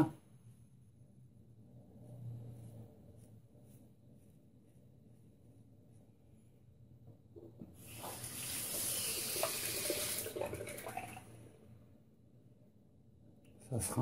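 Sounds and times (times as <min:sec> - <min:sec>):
tap water running into sink: 0:07.5 - 0:11.4.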